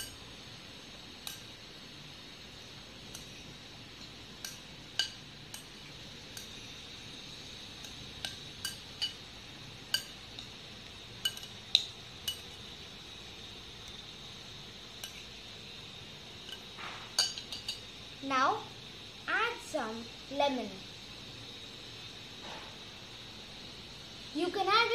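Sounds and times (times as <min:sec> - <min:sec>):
metal spoon clinking on glass bowl: 0:11.2 - 0:11.5, 0:12.2 - 0:12.5, 0:17.2 - 0:17.8.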